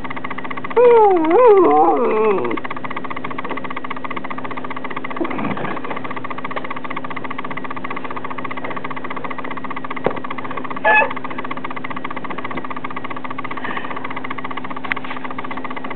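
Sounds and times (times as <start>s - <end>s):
dog whining: 0.8s - 2.6s, 10.8s - 11.2s
dog yelping: 0.8s - 2.6s, 10.8s - 11.2s
dog growling: 0.8s - 2.7s, 5.2s - 6.0s, 10.8s - 11.2s.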